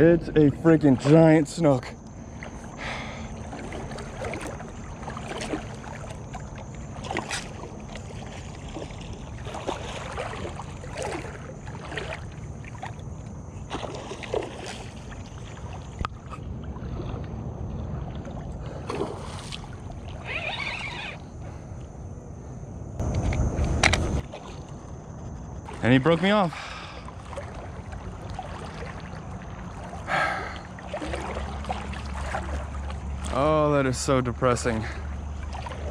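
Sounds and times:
steady low rumble: 0.0 - 13.8, 14.8 - 20.2, 21.2 - 35.9
water splashing around kayak: 0.5 - 21.9, 23.8 - 35.9.

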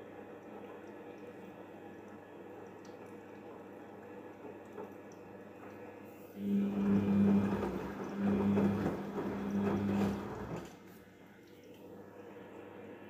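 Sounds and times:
wet washing dripping: 0.0 - 6.1, 7.0 - 12.1
washing machine motor hum: 0.0 - 13.0
water sloshing in drum: 2.7 - 11.8.

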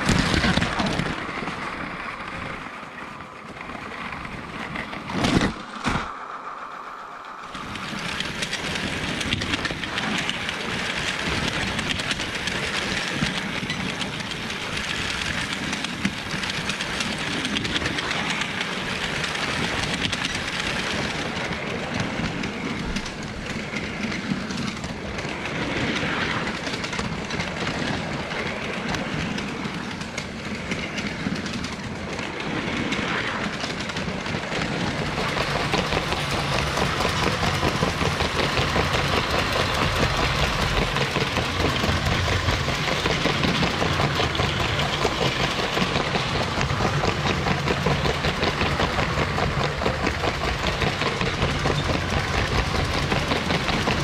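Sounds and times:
wheels clicking over rails: 0.0 - 54.0
toy train motor: 7.5 - 24.7, 34.5 - 54.0.

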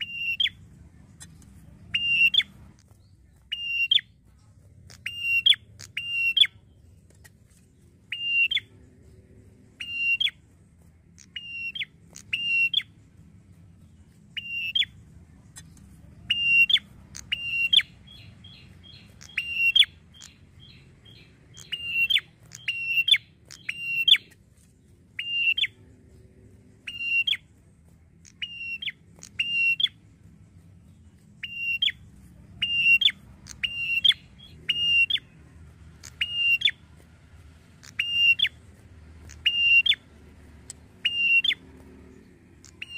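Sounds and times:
bird calling sharp notes: 0.0 - 0.6, 1.2 - 2.9, 3.5 - 4.1, 4.9 - 6.6, 8.1 - 8.7, 9.8 - 10.4, 11.2 - 12.9, 14.3 - 15.0, 16.3 - 24.4, 25.2 - 25.8, 26.8 - 27.5, 28.2 - 30.0, 31.4 - 32.0, 32.6 - 35.4, 36.0 - 36.9, 37.8 - 42.9
bird ticking notes: 0.0 - 42.9.

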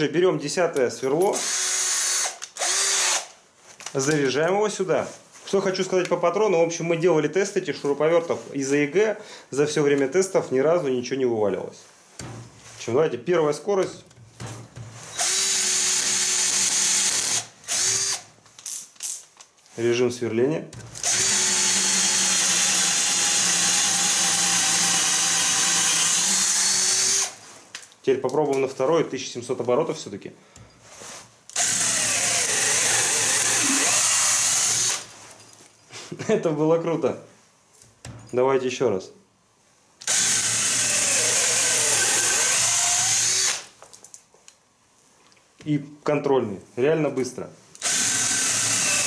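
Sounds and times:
cordless drill boring into wood: 1.4 - 3.3, 15.1 - 18.3, 20.8 - 27.4, 31.5 - 35.1, 40.0 - 43.7, 47.8 - 49.0.

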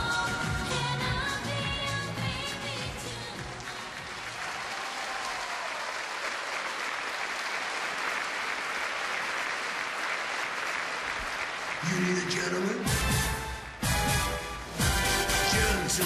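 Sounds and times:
audience applauding: 2.8 - 12.8.

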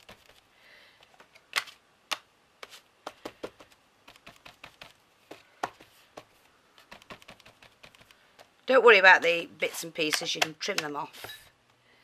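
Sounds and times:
ink pad tapping on paper: 3.0 - 6.3, 6.9 - 8.1.

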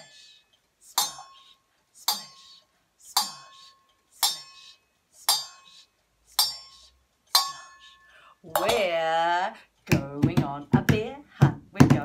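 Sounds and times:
spoon striking metal bowl: 2.1 - 2.5, 4.2 - 4.6, 6.4 - 8.8.

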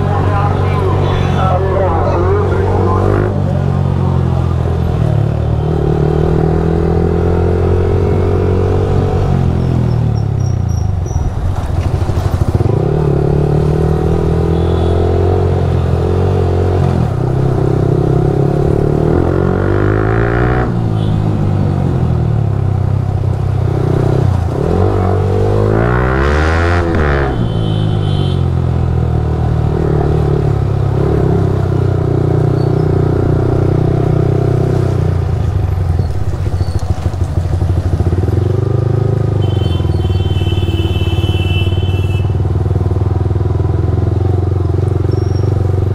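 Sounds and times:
motorcycle engine revving: 0.0 - 45.9.

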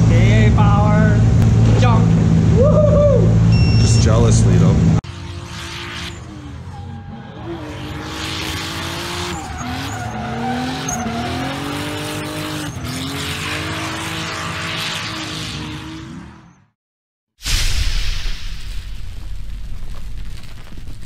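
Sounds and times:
car engine revving: 0.0 - 16.7
tyres squealing and skidding: 5.2 - 16.7.

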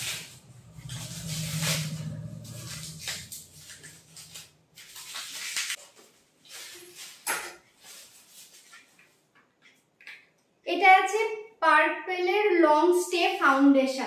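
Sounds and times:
plastic wrapping crinkling: 0.0 - 9.2.

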